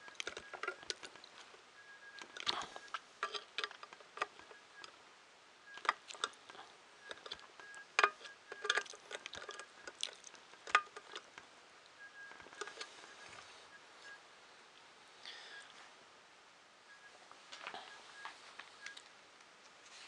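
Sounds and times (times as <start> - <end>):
screwdriver clicks and scrapes on metal: 2.2 - 4.9, 5.8 - 11.4, 12.3 - 12.9.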